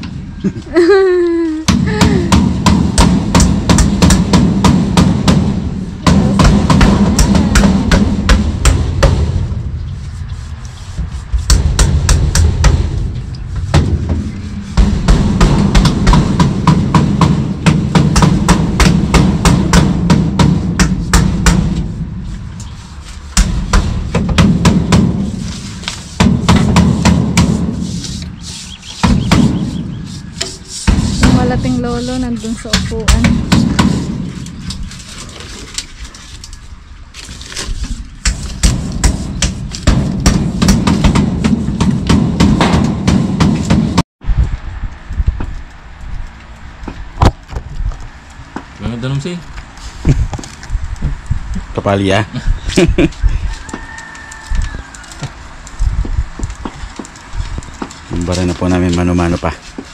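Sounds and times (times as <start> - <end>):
fast drum beat with bass: 1.8 - 9.4, 11.0 - 21.8, 29.0 - 34.2.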